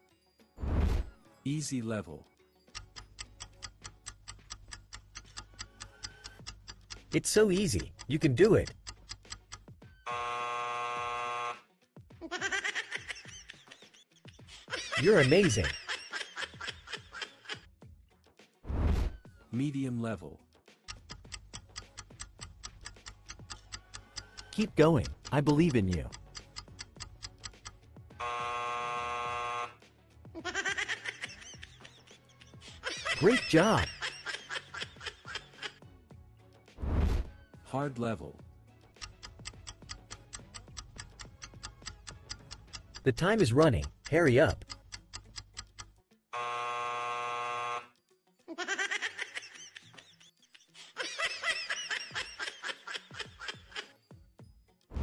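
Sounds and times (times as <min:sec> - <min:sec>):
game timer ticking rapidly: 0:02.7 - 0:09.8, 0:15.0 - 0:15.9, 0:20.8 - 0:27.9, 0:32.8 - 0:34.2, 0:39.0 - 0:46.0
electronic buzzer: 0:10.0 - 0:11.7, 0:28.2 - 0:29.8, 0:46.3 - 0:48.0
high-pitched giggling laughter: 0:12.2 - 0:17.7, 0:30.4 - 0:35.8, 0:48.5 - 0:54.0.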